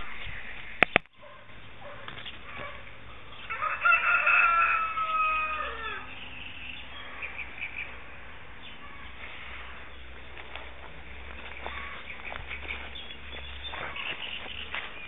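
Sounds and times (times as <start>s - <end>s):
rooster crowing: 3.4s - 6.2s.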